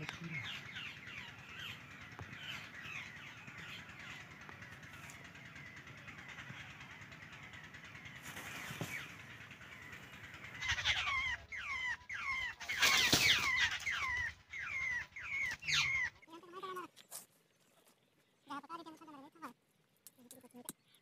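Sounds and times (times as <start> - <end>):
faint bird sounds: 0.0 - 21.0
babbler harsh calls: 9.7 - 16.9.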